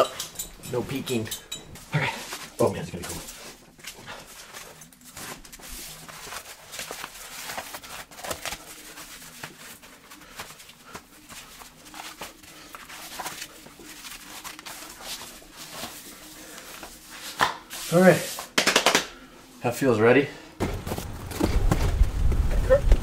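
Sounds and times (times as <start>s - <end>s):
wetsuit rustling and rubbing: 2.0s - 18.5s.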